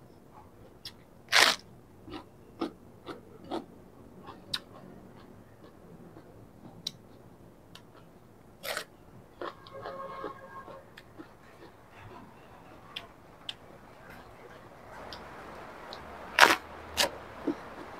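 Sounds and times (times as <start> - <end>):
chewing with small crunches: 0.4 - 17.9
biting into raw cabbage: 0.9 - 2.3, 8.6 - 9.6, 16.3 - 17.6.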